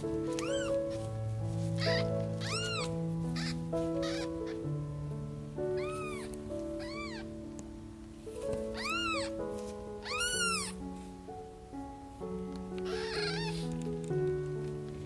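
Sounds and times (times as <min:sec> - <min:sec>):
background music: 0:00.0 - 0:15.0
kittens mewing: 0:00.4 - 0:00.8, 0:01.8 - 0:04.7, 0:05.8 - 0:07.4, 0:08.7 - 0:09.4, 0:10.0 - 0:10.8, 0:12.8 - 0:13.7.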